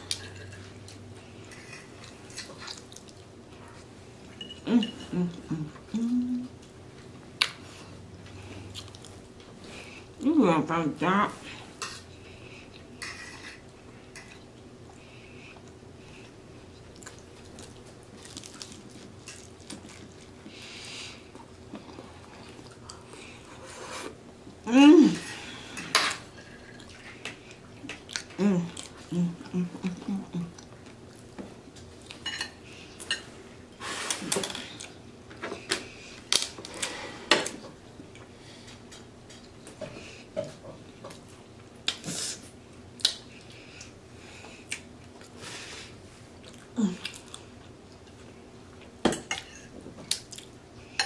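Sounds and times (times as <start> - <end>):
chewing: 8.2 - 10.0, 12.3 - 20.6, 26.4 - 32.2, 46.4 - 48.8.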